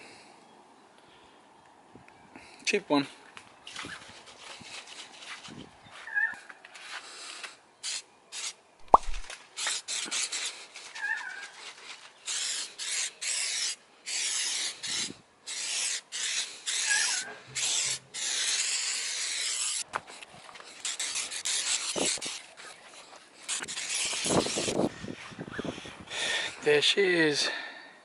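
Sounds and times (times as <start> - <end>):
aerosol can spraying: 7.8 - 11.6, 12.2 - 19.9, 20.7 - 22.6, 23.5 - 24.8.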